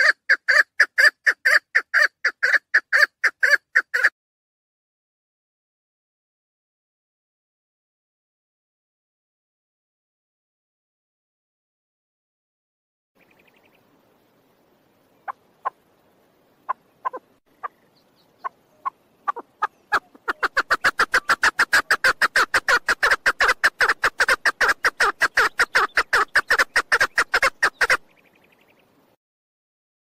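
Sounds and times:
partridge clucking: 18.8 - 28.0.

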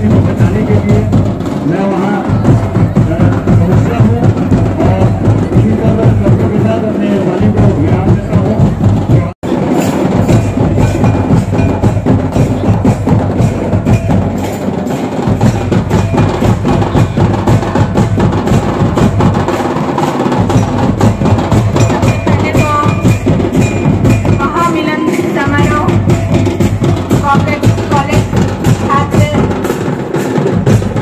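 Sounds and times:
hand drums fast rhythm: 0.0 - 31.0
high melodic notes: 9.5 - 31.0.

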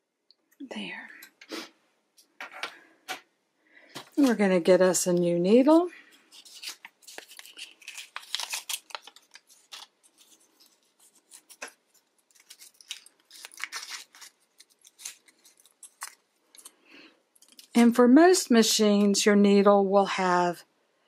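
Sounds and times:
plastic sleeve crinkling: 4.0 - 16.8, 17.4 - 17.8.

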